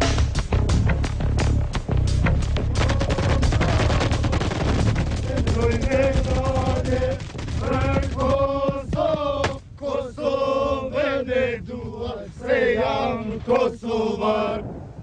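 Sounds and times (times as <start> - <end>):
rapid rifle shots: 3.2 - 8.6
men chanting in unison: 5.2 - 14.6.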